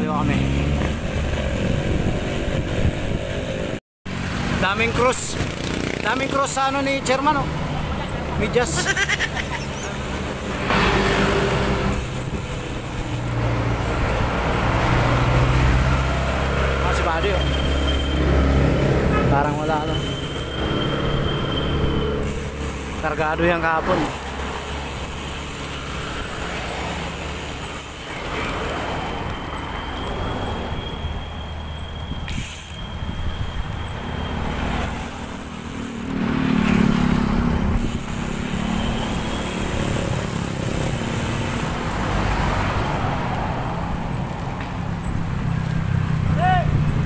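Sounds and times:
road traffic passing: 0:00.0 - 0:47.0
wind rumble on microphone: 0:00.8 - 0:03.8
vehicle passing close: 0:07.6 - 0:30.7, 0:33.7 - 0:47.0.

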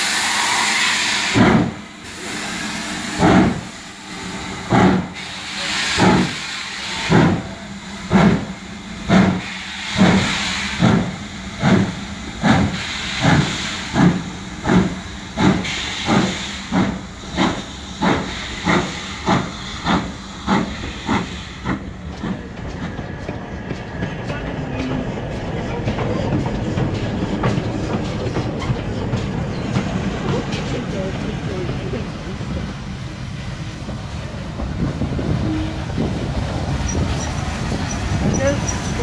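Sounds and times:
steam hissing: 0:00.0 - 0:39.0
steam locomotive exhaust beats: 0:00.0 - 0:39.0.

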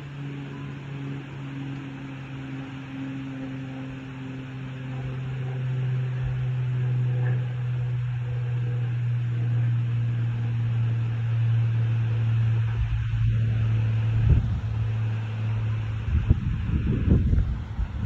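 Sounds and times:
low mechanical hum: 0:00.0 - 0:18.0
low rumbling gusts of noise: 0:04.7 - 0:18.0.

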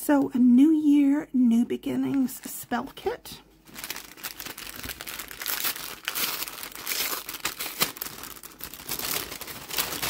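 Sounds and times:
paper packaging crinkling: 0:03.6 - 0:10.0.

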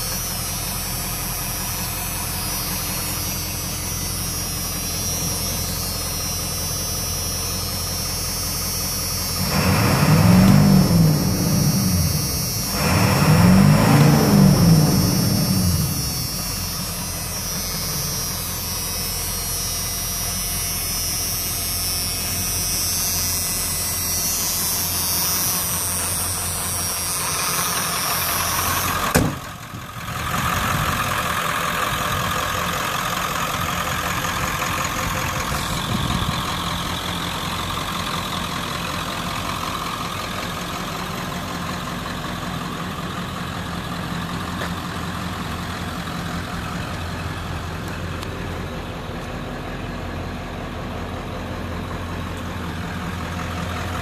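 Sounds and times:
diesel engine idling: 0:00.0 - 0:54.0
sharp thump: 0:29.1 - 0:29.5.

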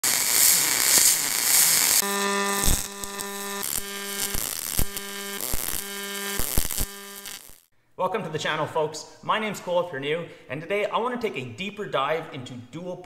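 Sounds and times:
welding arc buzzing and crackling: 0:00.0 - 0:07.7.

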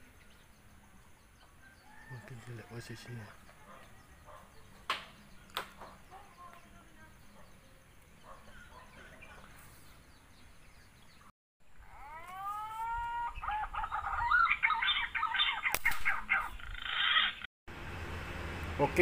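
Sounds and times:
faint bird chirping: 0:00.0 - 0:17.5
rooster crowing: 0:01.6 - 0:02.5
sharp click: 0:15.7 - 0:16.2.

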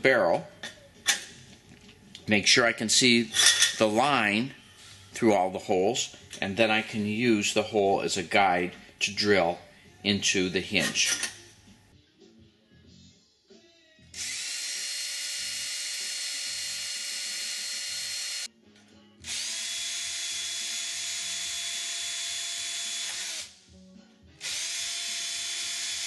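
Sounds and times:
cordless drill drilling metal: 0:14.2 - 0:18.5, 0:19.2 - 0:23.6, 0:24.4 - 0:26.0.

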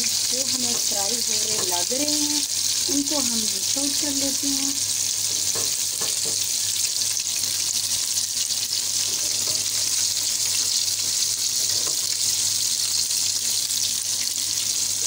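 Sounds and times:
chicken wings deep-frying in oil: 0:00.0 - 0:15.0.

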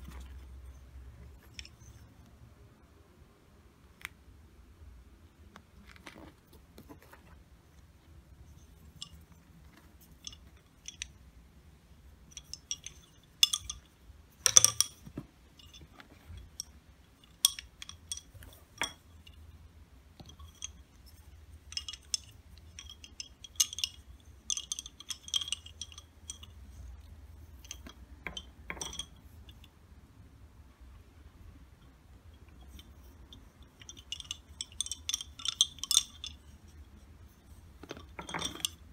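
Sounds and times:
wooden bobbins clicking: 0:00.0 - 0:02.4, 0:08.5 - 0:11.3, 0:12.2 - 0:19.6, 0:20.2 - 0:29.7, 0:31.8 - 0:38.9.

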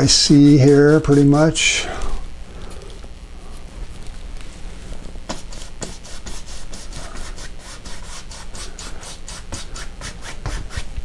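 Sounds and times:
paintbrush scrubbing on canvas: 0:00.0 - 0:01.8, 0:05.3 - 0:11.0.

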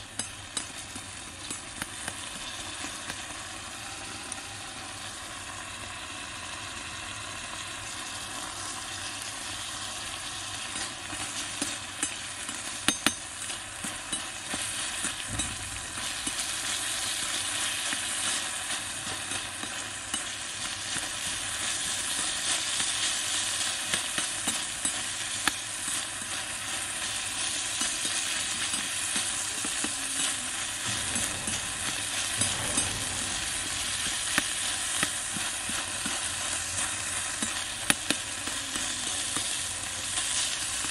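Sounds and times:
food sizzling in hot oil: 0:00.0 - 0:40.9.

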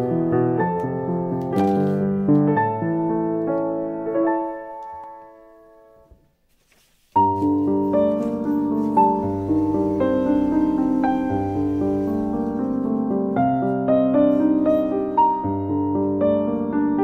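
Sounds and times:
gentle piano music: 0:00.0 - 0:06.4, 0:07.2 - 0:17.0.

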